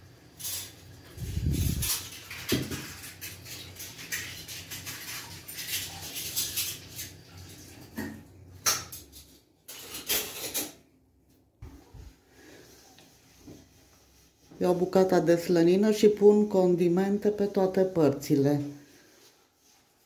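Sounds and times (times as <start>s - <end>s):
light scratches and rustles: 0.4s - 7.8s, 18.5s - 20.0s.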